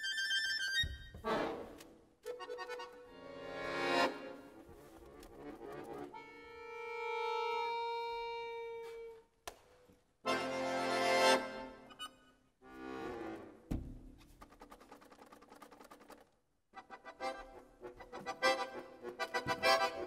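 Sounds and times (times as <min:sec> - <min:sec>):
accordion playing: 0:00.0 - 0:09.2, 0:10.2 - 0:13.6, 0:16.8 - 0:20.0.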